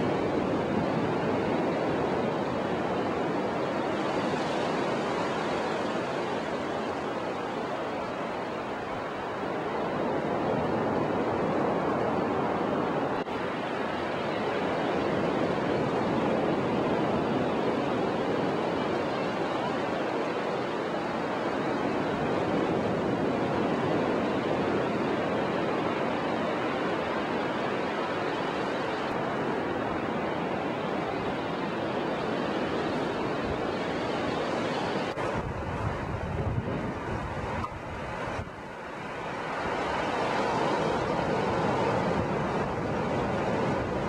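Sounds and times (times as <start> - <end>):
ocean surf washing onto beach: 0.0 - 44.0
wind rumbling on microphone: 0.0 - 44.0.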